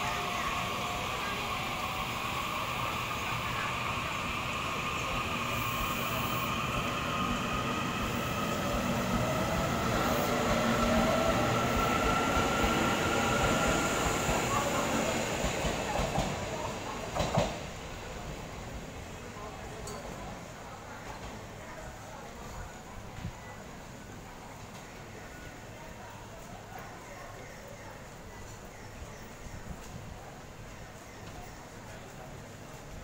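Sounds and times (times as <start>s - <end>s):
train wheels rumbling on rails: 0.0s - 20.4s.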